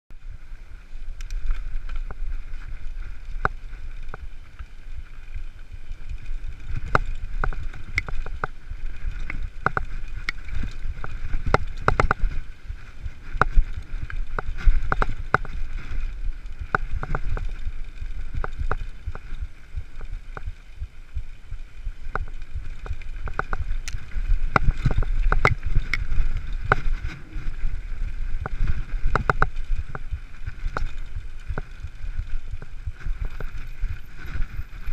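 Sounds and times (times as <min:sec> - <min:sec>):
wind on microphone: 0:00.1 - 0:34.9
bike rattling over rocks: 0:00.2 - 0:34.9.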